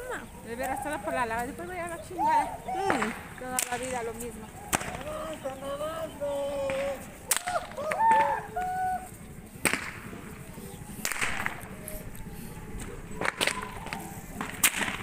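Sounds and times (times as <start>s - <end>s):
rope whip cracks: 4.7s - 5.2s, 6.6s - 8.8s, 9.6s - 10.2s, 11.0s - 11.8s, 13.2s - 15.0s.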